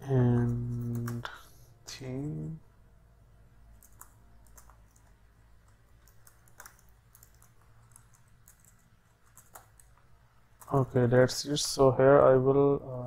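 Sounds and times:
low steady hum: 0:00.0 - 0:13.0
typing on computer keyboard: 0:00.4 - 0:01.3, 0:03.7 - 0:10.8.

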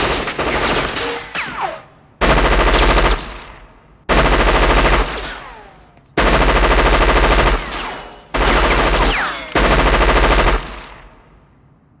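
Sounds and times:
machine-gun fire bursts: 0:02.2 - 0:03.5, 0:04.1 - 0:05.6, 0:06.2 - 0:11.2.

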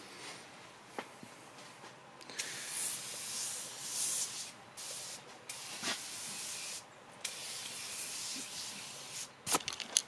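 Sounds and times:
aerosol can spraying hiss: 0:02.4 - 0:09.3.

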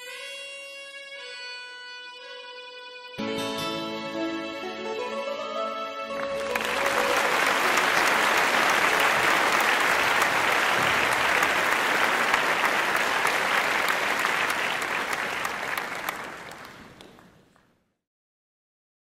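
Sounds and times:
applause: 0:06.1 - 0:17.8.

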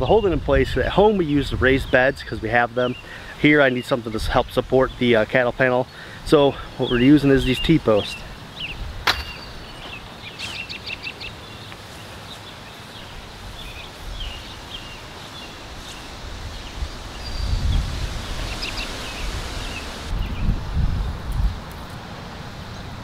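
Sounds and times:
wind rumbling on microphone: 0:00.0 - 0:02.6, 0:07.2 - 0:10.2, 0:12.9 - 0:22.0
birds chirping: 0:00.0 - 0:20.6.

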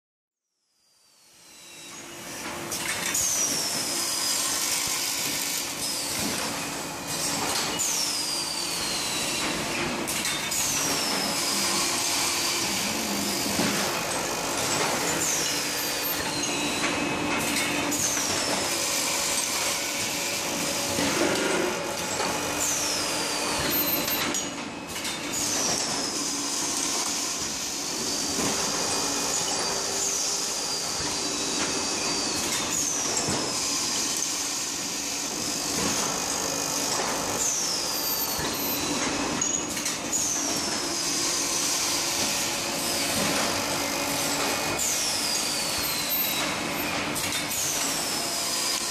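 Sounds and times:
factory machine din: 0:08.7 - 0:22.6.

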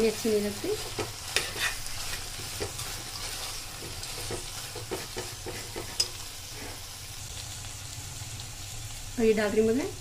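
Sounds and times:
vegetables sizzling in oil: 0:00.0 - 0:10.0
metal spoon scraping pot: 0:00.8 - 0:06.8.

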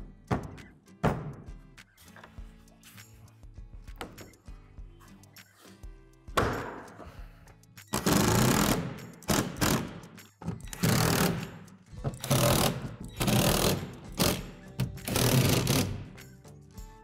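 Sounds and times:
drill driving screws into plastic: 0:08.0 - 0:10.0, 0:10.6 - 0:11.6, 0:12.2 - 0:16.1.

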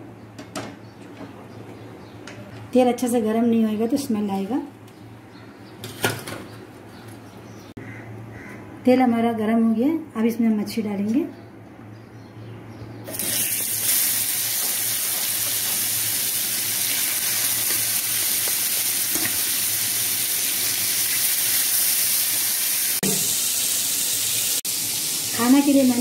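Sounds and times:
fish sizzling in hot oil: 0:13.1 - 0:26.0.

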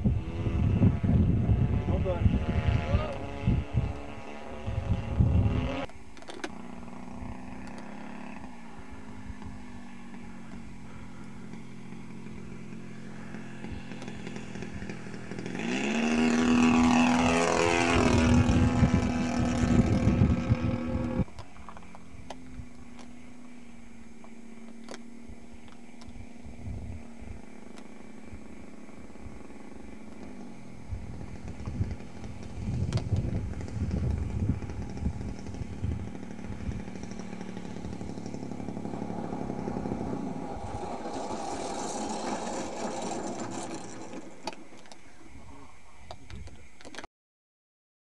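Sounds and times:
wind buffeting microphone: 0:00.0 - 0:05.9, 0:13.6 - 0:21.3, 0:26.0 - 0:27.6, 0:30.7 - 0:45.6
model plane engine droning: 0:00.0 - 0:47.1.

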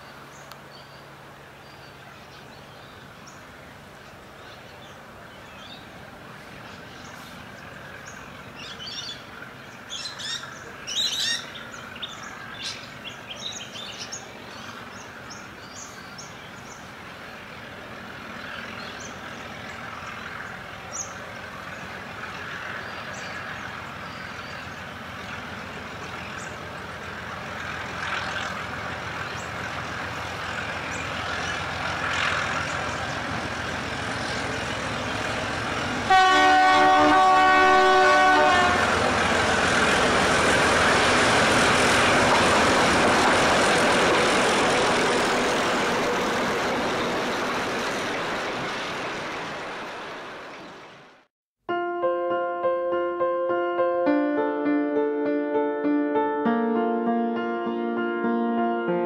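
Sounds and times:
diesel locomotive rumbling: 0:00.0 - 0:51.3
birds chirping: 0:00.1 - 0:17.7, 0:18.3 - 0:27.6.

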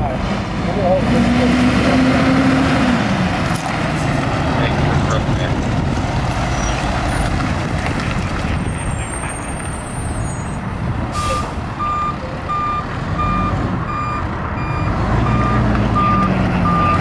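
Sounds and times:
diesel engine pulling away: 0:00.0 - 0:17.0
tyre and road noise: 0:00.0 - 0:17.0
electronic beeping: 0:11.3 - 0:17.0.

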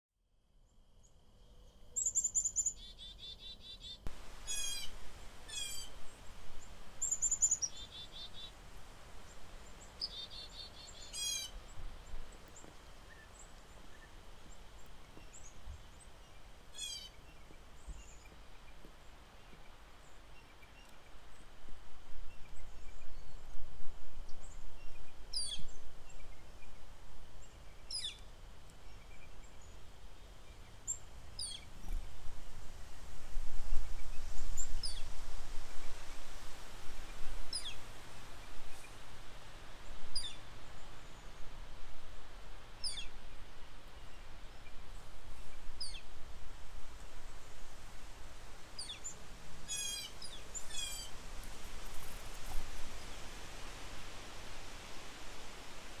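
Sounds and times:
songbirds chirping: 0:00.6 - 0:32.1
wind rumbling on microphone: 0:04.1 - 0:56.0.

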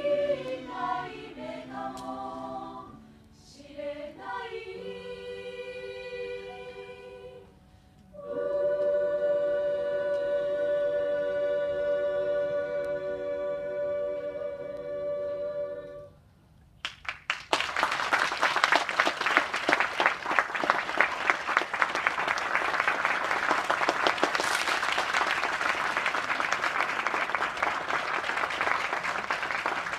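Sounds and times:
choir holding chord: 0:00.0 - 0:16.2
audience applause: 0:16.8 - 0:29.9.

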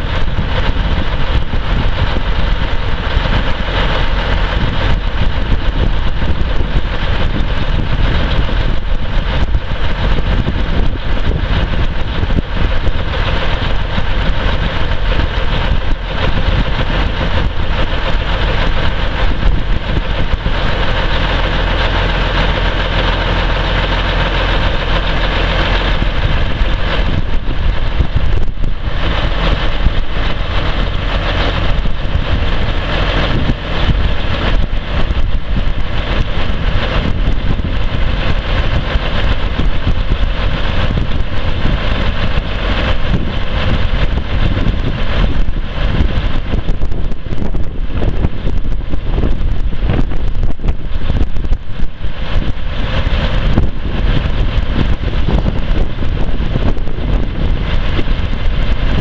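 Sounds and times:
diesel truck engine idling: 0:00.0 - 0:59.0.

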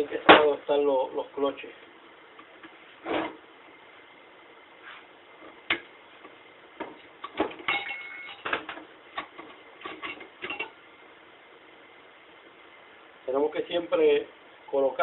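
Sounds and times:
brief metallic ring: 0:07.7 - 0:08.4.

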